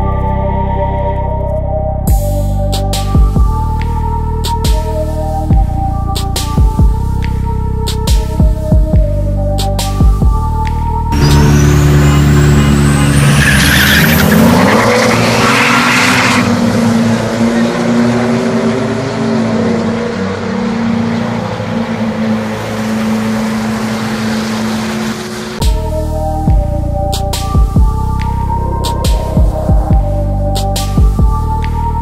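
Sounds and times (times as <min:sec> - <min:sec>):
high whine: 0:08.4 - 0:32.0
trucks accelerating hard: 0:11.1 - 0:25.6.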